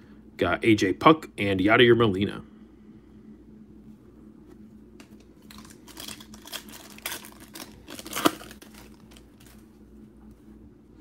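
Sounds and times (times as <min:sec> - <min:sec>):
foil wrapper crinkling: 0:05.0 - 0:09.7
foil wrapper ripping: 0:05.1 - 0:09.6.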